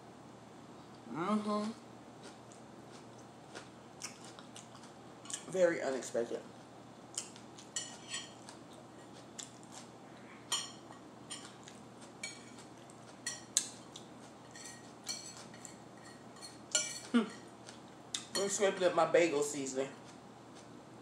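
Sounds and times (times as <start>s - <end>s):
knife scraping a plate: 7.8s - 9.2s, 14.4s - 17.4s.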